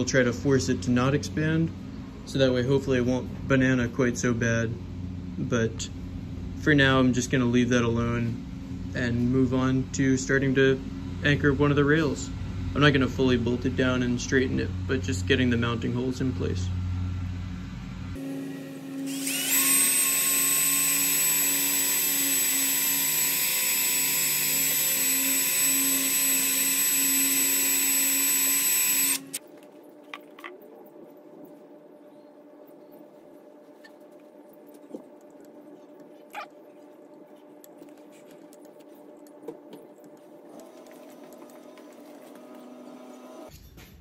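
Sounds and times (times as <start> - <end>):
cordless drill whining: 18.9 - 29.4, 40.5 - 43.5.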